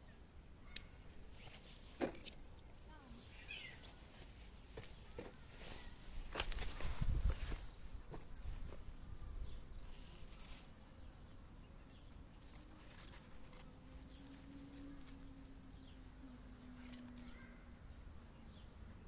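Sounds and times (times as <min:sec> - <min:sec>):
footsteps crunching on straw: 0:03.2 - 0:09.0.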